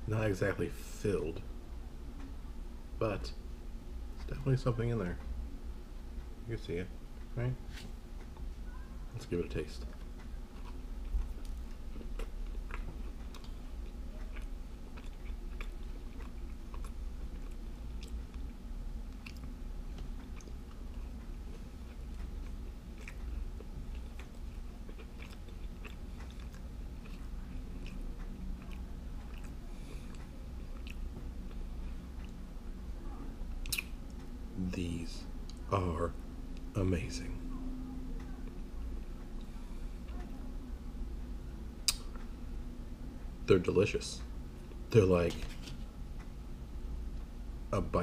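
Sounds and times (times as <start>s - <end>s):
person chewing crunchy food: 9.8s - 32.4s
mouth clicks: 33.6s - 34.0s, 41.8s - 42.3s.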